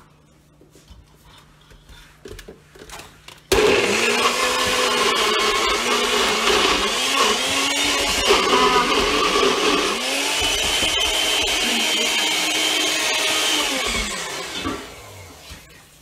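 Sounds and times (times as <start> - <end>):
blender running: 3.5 - 15.7.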